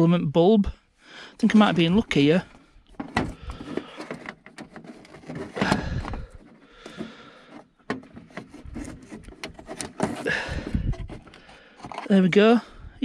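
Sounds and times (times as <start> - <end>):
plastic rubbing scrape: 1.4 - 12.7
plastic case clicks and knocks: 2.9 - 7.1.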